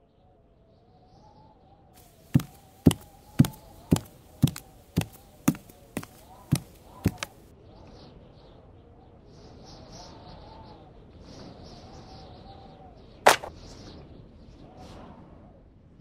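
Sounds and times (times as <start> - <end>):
sharp thumps: 2.3 - 7.4, 13.3 - 13.5.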